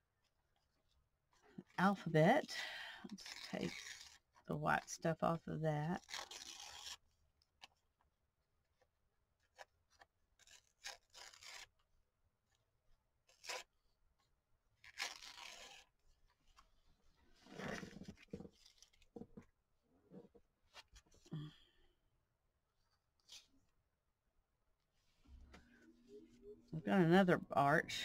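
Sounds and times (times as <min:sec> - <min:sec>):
faint paper tearing: 0:03.0 - 0:05.0, 0:06.0 - 0:07.8, 0:09.4 - 0:11.9, 0:13.2 - 0:19.2, 0:23.2 - 0:23.6.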